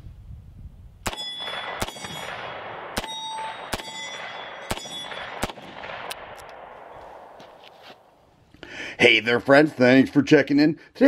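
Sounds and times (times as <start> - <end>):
ringing tone: 1.1 - 5.4.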